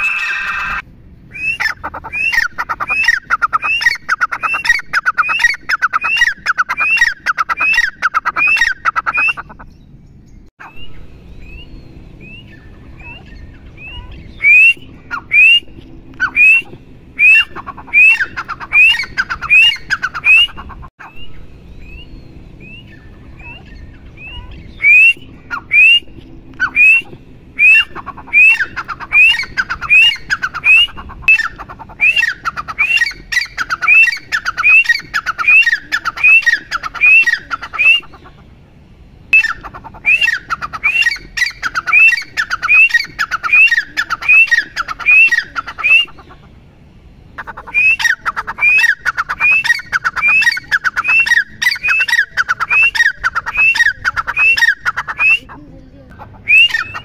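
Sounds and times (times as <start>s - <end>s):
faint francolin calls: 0.0s - 0.8s, 12.3s - 20.9s, 22.7s - 38.6s, 39.4s - 46.6s, 47.3s - 57.0s
francolin calling: 0.0s - 9.9s, 10.8s - 38.5s, 39.3s - 57.0s.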